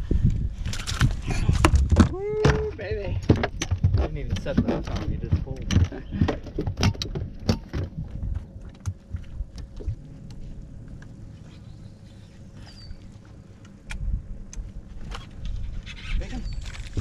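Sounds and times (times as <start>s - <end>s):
faint steady hum: 0.0s - 15.9s
wind rumbling on microphone: 0.0s - 17.0s
fishing gear clicks and knocks: 0.6s - 11.4s.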